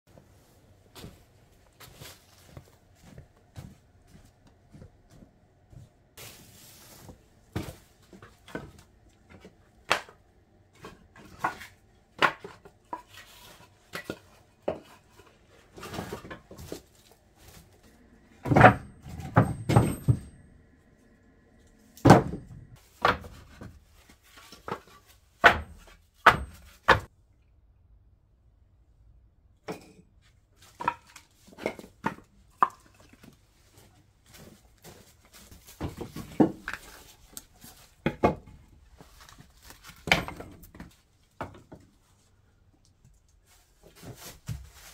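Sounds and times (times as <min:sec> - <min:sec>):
firewood knocking together: 0:38.0 - 0:38.6.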